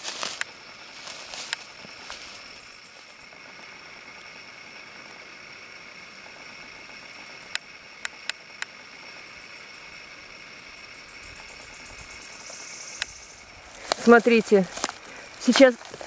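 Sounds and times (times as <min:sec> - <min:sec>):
steady high hiss: 0:00.0 - 0:16.0
sharp clicks: 0:07.4 - 0:08.8, 0:12.9 - 0:16.0.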